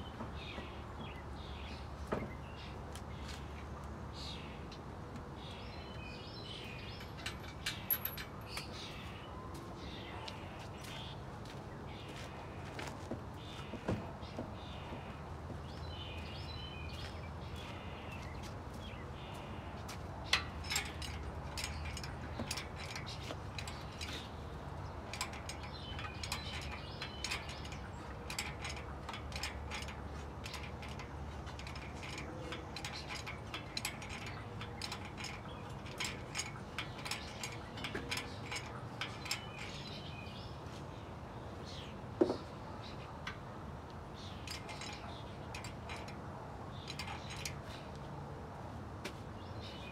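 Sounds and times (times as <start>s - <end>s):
birds chirping: 0.0s - 49.9s
metal clank: 6.8s - 8.8s, 25.1s - 40.3s
metallic clicks of tools: 25.0s - 40.1s.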